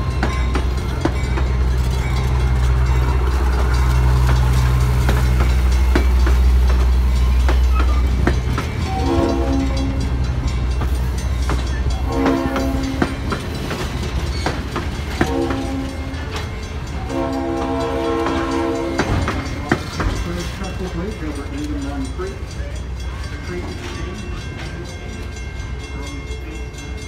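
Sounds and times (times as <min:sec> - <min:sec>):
train wheels clicking over rail joints: 0:00.0 - 0:27.0
locomotive horn blasts: 0:08.9 - 0:10.1, 0:12.0 - 0:13.1, 0:15.2 - 0:16.2, 0:17.0 - 0:19.3.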